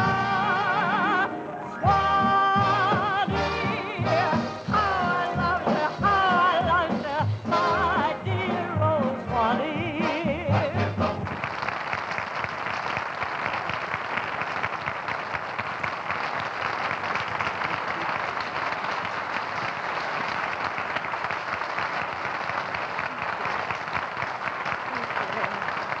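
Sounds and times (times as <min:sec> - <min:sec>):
band playing: 0:00.0 - 0:11.4
audience applauding: 0:09.3 - 0:26.0.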